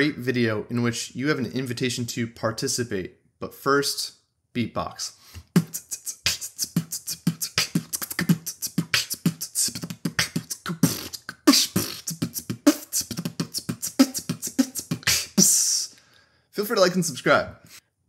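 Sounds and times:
man beatboxing: 5.4 - 16.0.

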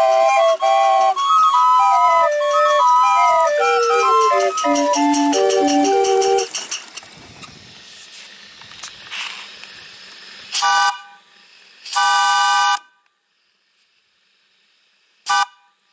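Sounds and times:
steam whistle blowing: 0.0 - 6.6, 10.6 - 11.3, 11.9 - 12.8, 15.3 - 15.6
steady steam hiss: 0.0 - 15.9.

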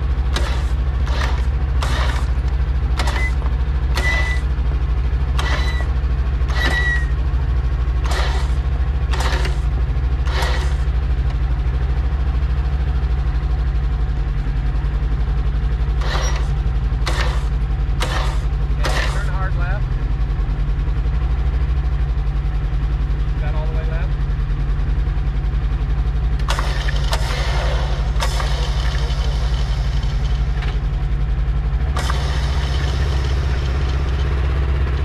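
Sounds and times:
vehicle engine idling: 0.0 - 35.0
sharp clicks or knocks: 0.3 - 4.4, 9.1 - 9.6, 16.0 - 19.2.

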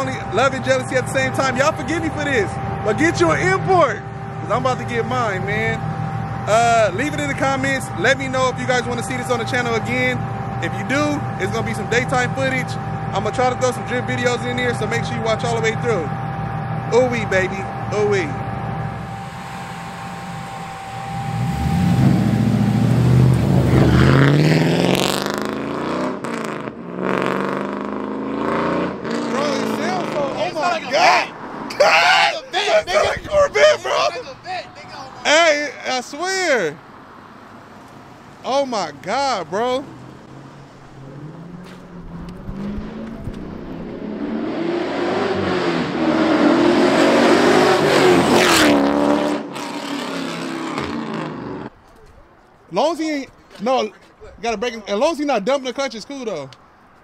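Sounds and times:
car engine revving: 0.0 - 31.8, 32.6 - 51.8
car accelerating hard past: 18.7 - 31.7, 39.9 - 51.7.

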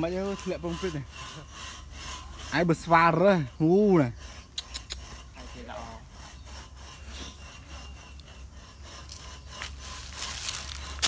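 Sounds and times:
leaves crunching underfoot: 9.1 - 11.0.

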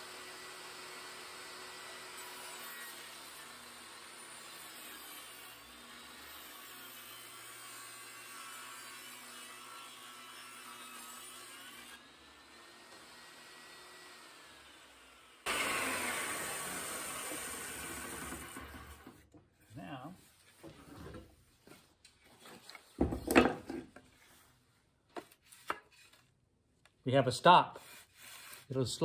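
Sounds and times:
table saw whirring: 0.0 - 19.4.

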